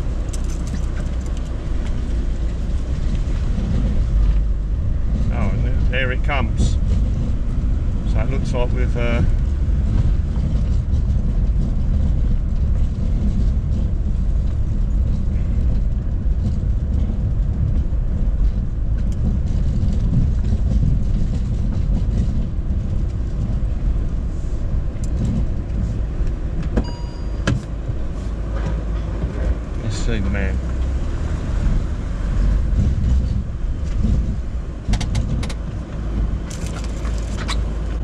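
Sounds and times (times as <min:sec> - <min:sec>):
van engine rumble from cab: 0:00.0 - 0:38.0
short high beep: 0:26.8 - 0:27.5.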